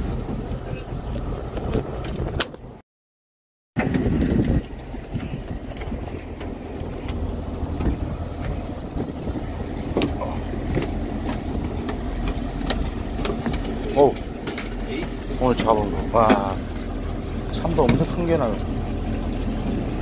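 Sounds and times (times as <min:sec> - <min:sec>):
boat engine rumble: 0:00.0 - 0:02.8, 0:03.8 - 0:20.0
wind on microphone: 0:00.0 - 0:02.8, 0:03.8 - 0:13.7.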